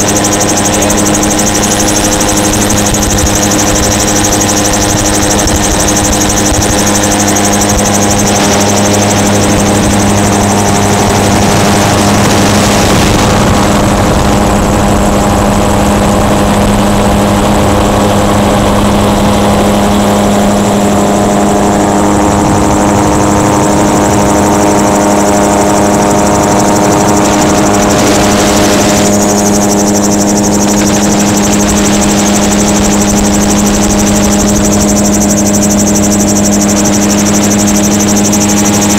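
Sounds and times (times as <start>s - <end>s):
gyrocopter engine and propeller: 0.0s - 38.9s
wind rushing: 0.0s - 38.9s.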